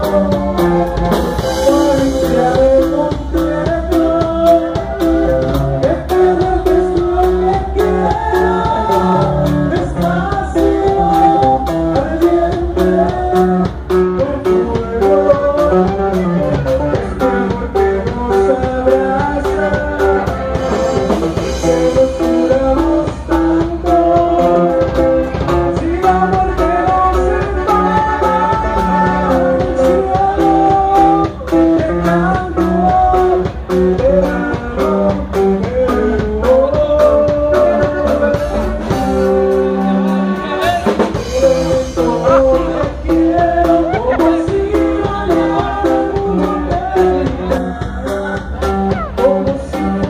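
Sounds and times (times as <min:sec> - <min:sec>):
drum kit beat: 0:00.0 - 0:50.0
person singing: 0:00.0 - 0:50.0.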